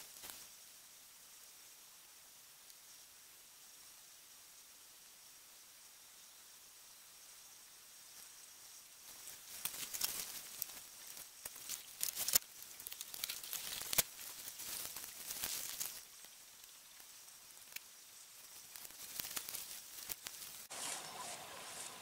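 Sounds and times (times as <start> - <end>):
footsteps through dry grass: 9.1 - 16.4
sharp twig cracks: 9.1 - 16.7, 17.6 - 17.9, 18.5 - 20.7.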